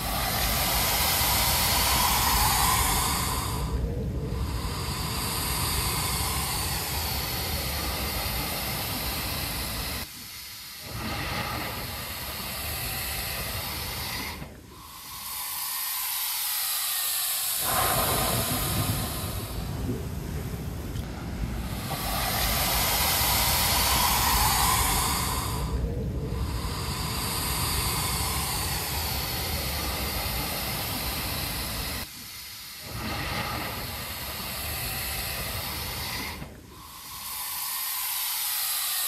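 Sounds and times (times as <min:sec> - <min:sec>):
blowhole hissing: 0:00.0 - 0:39.0
surf washing: 0:17.6 - 0:32.0.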